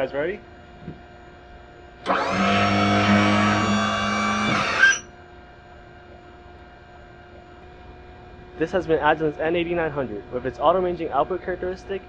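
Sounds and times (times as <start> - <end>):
hydraulic pump motor whine: 2.0 - 5.2.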